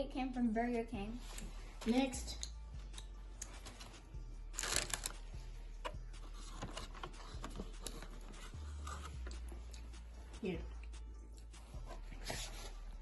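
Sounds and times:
paper bags crinkling: 4.6 - 5.2.

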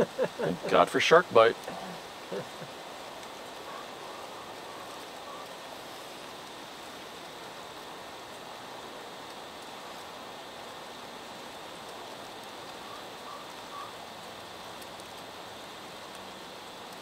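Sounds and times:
river water rushing: 0.0 - 17.0.

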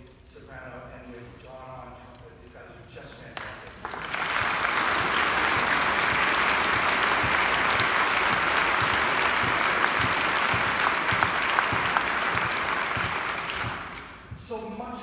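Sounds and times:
audience applauding: 3.4 - 14.3.

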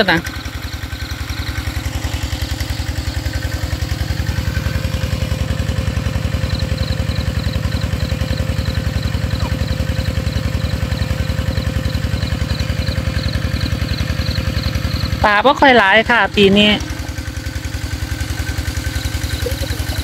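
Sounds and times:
water pump engine pulsing: 0.0 - 20.0.

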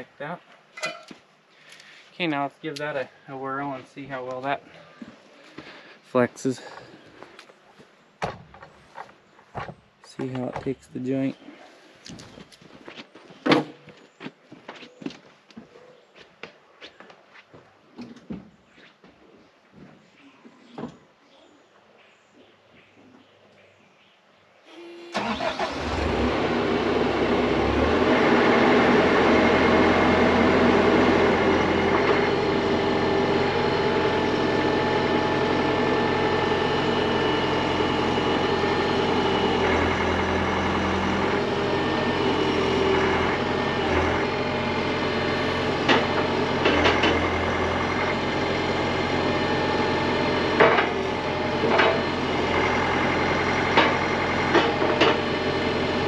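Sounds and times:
sharp metal clanks: 0.8 - 1.2
diesel engine running: 9.6 - 11.4, 24.8 - 56.0.

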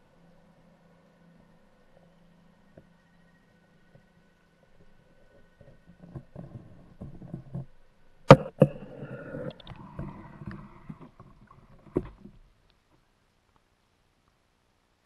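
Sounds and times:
water splashing and sloshing: 8.4 - 12.6.

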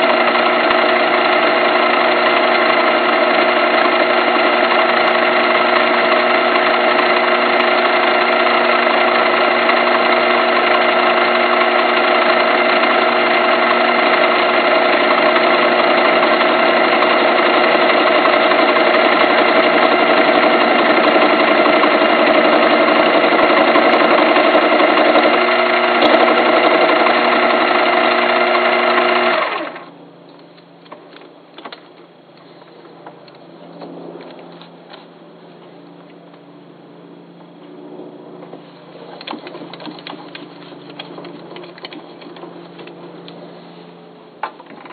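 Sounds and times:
small metal lathe whining: 0.0 - 30.0.

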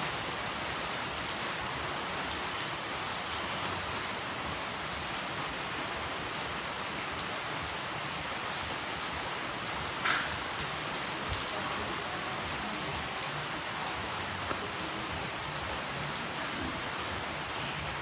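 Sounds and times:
steady rain hiss: 0.0 - 18.0
raindrops clicking: 10.0 - 11.6, 14.4 - 16.2.

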